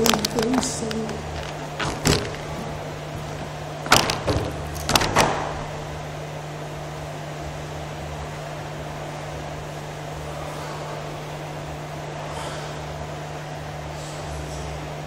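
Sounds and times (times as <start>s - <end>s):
footsteps on gym floor: 0.0s - 5.6s
steady low hum: 0.0s - 15.0s
sharp knocks: 1.3s - 5.7s.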